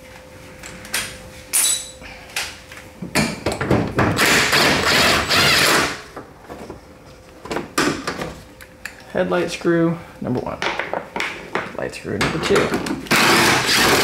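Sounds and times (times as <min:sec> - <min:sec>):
cordless drill running: 0:04.2 - 0:06.0, 0:13.1 - 0:14.0.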